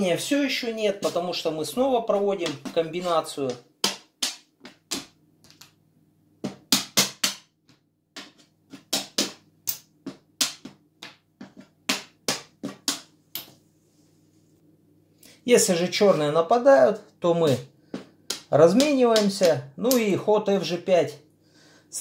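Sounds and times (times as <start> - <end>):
draughts pieces clacking on board: 8.2 - 13.5.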